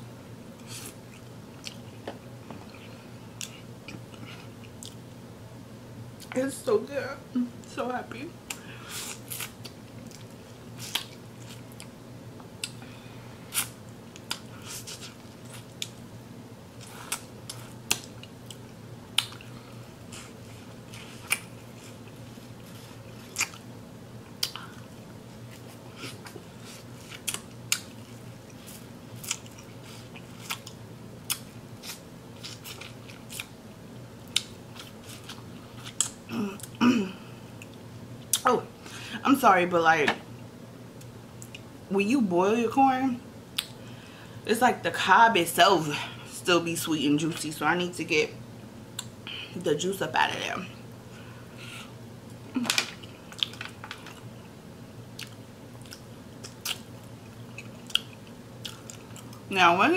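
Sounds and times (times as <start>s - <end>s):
low room hum: 0.0s - 59.9s
person chewing corn on the cob: 0.6s - 2.0s, 16.8s - 23.7s, 24.4s - 33.6s, 34.2s - 36.8s, 55.1s - 59.5s.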